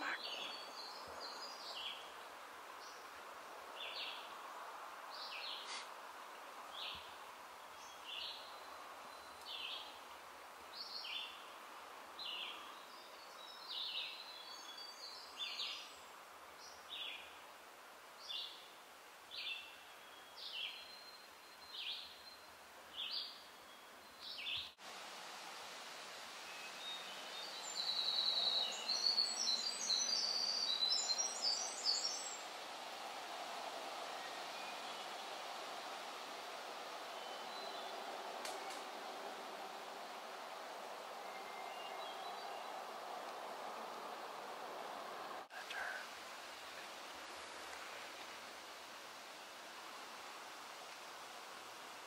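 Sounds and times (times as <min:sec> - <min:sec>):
bird twittering song: 0:00.0 - 0:02.1, 0:26.5 - 0:32.5, 0:37.0 - 0:39.0, 0:41.0 - 0:44.0
faint outdoor hiss: 0:00.0 - 0:52.0.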